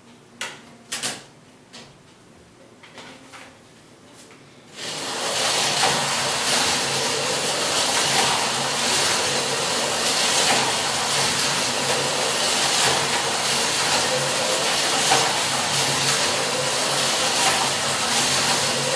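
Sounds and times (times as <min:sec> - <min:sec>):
slot car whirring on track: 0:04.8 - 0:18.9.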